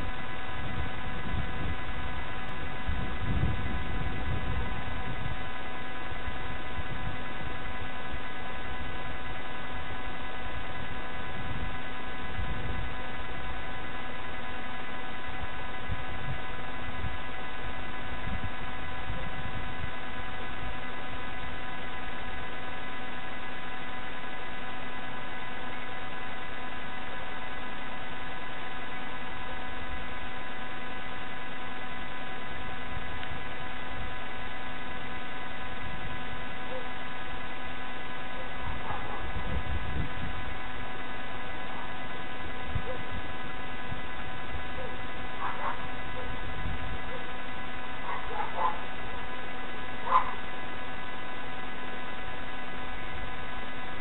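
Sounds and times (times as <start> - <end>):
electrical hum: 0.0 - 54.0
low uneven rumble: 0.0 - 54.0.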